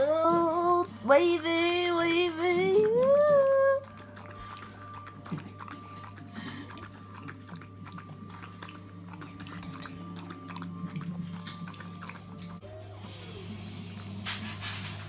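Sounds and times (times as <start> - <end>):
dog lapping from bowl: 2.4 - 12.6.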